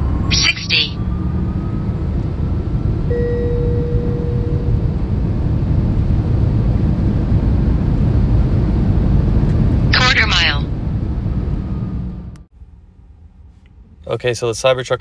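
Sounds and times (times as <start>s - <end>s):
road and wind noise in car: 0.0s - 15.0s
faint steady tone: 3.1s - 5.2s.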